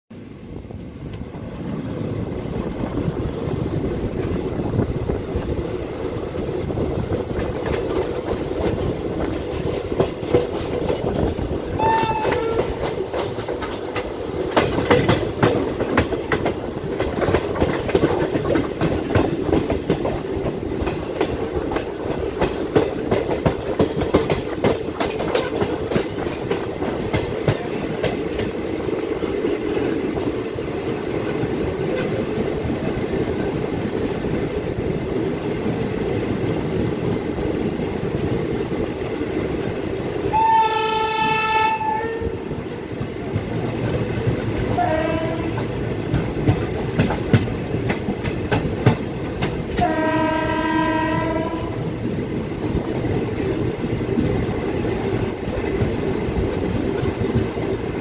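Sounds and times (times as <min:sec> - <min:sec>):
train wheels rumbling and clacking: 0:00.1 - 0:58.0
train horn: 0:11.7 - 0:12.9, 0:40.3 - 0:42.5, 0:44.7 - 0:45.7, 0:49.8 - 0:51.8.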